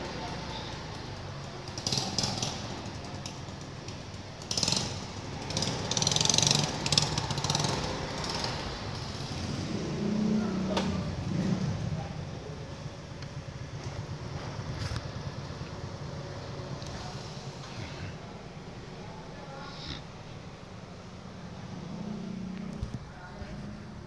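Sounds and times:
scooter engine running: 0.1s - 17.1s.

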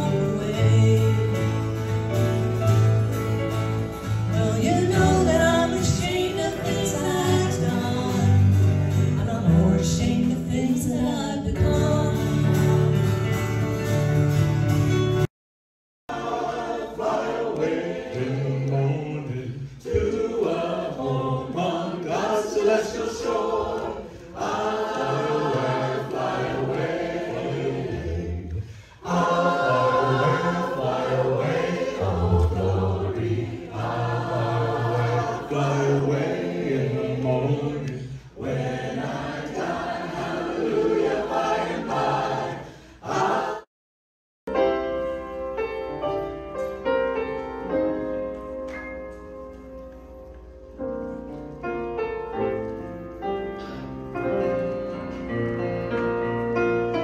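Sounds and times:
group of people singing together: 4.2s - 12.9s, 16.1s - 43.7s.

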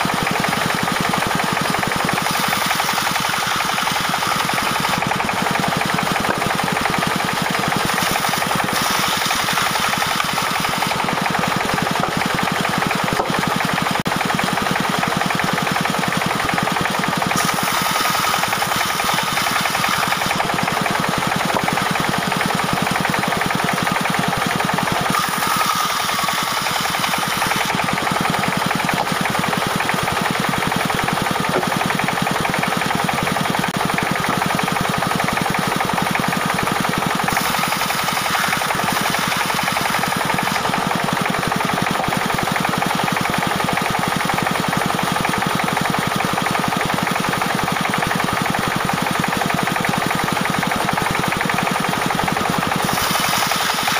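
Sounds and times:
diesel engine running: 0.0s - 53.9s
band saw ripping a log: 2.1s - 13.5s, 17.3s - 22.5s, 23.4s - 32.5s, 37.1s - 41.4s, 52.8s - 53.9s.

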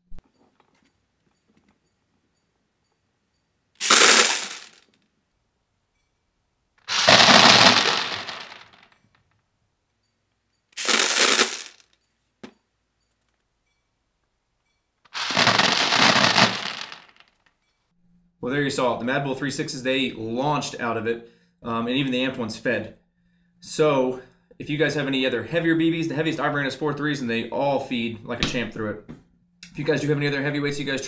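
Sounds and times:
bbs clattering into plastic box: 3.8s - 4.9s, 6.9s - 8.9s, 10.8s - 11.9s, 15.1s - 17.3s.

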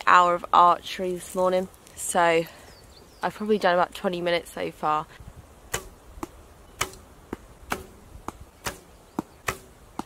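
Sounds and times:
arrows striking target: 5.7s - 10.0s.

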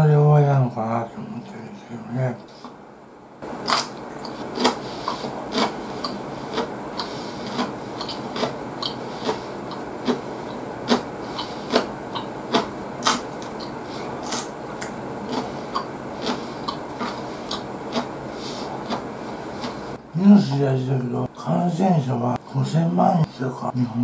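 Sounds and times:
steady hiss: 0.0s - 24.0s
person chewing: 3.4s - 20.0s
mouth clicks: 3.6s - 19.8s.

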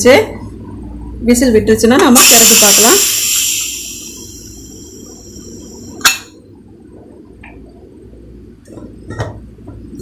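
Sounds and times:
pressure cooker steam hiss: 2.2s - 6.1s.

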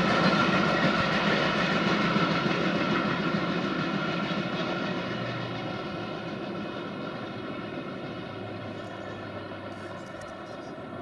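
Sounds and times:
train wheels rumbling on track: 0.0s - 11.0s.

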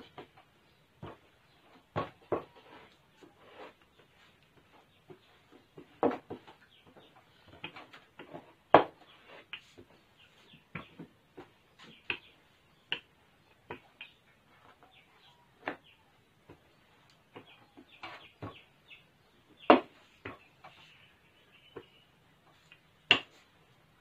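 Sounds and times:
rolling pin rolling dough: 0.0s - 18.8s.

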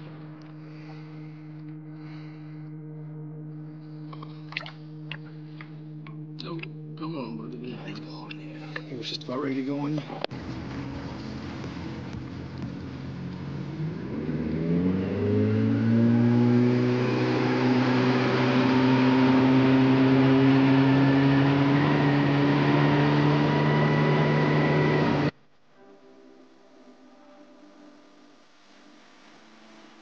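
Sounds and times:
rushing water: 10.3s - 14.4s
outboard motor throttling up: 10.3s - 25.3s.

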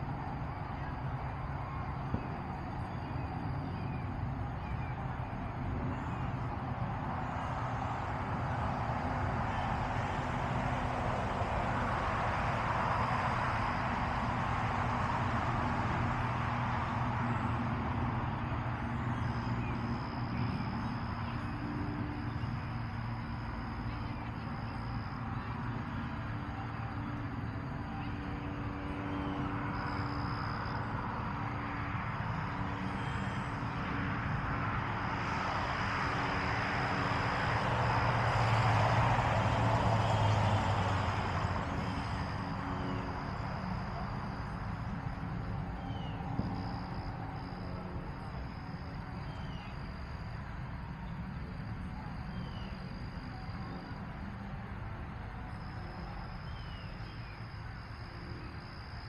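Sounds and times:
car passing: 0.0s - 59.0s
high insect trill: 0.0s - 59.0s.

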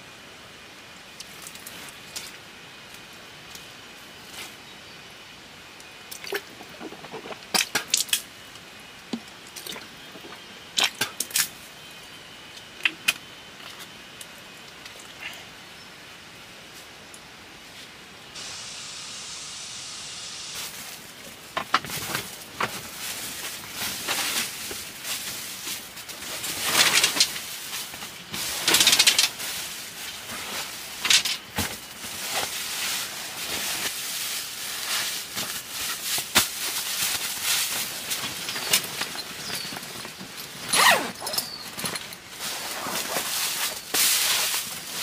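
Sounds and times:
foam sleeping pad crinkling: 20.6s - 45.0s.

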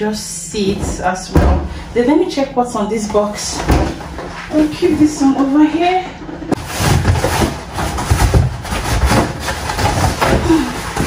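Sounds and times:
dull bumps and knocks: 0.6s - 1.8s, 6.5s - 11.0s
cardboard rustling and scraping: 6.5s - 11.0s.

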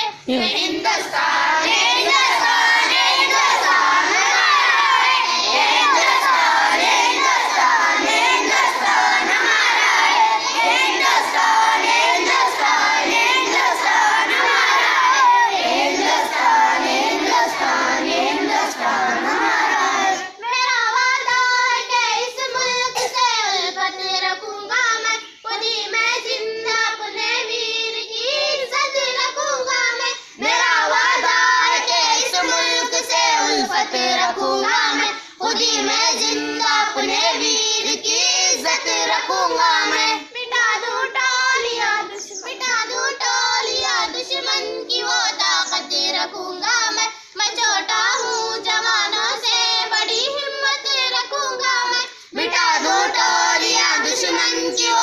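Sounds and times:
children singing in unison: 0.0s - 55.0s
children's voices: 0.0s - 55.0s.

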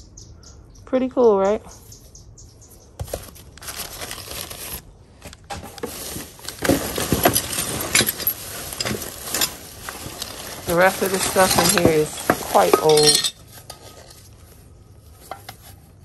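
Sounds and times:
plastic bag rustling and crinkling: 3.0s - 16.0s
objects clicking and knocking: 5.2s - 14.3s.

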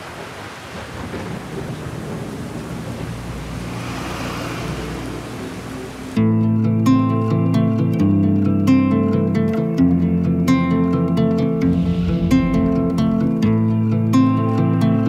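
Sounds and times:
steady rain: 0.0s - 6.2s
low thunder rumble: 0.1s - 6.2s, 11.7s - 14.1s
acoustic guitar music: 5.8s - 15.0s.

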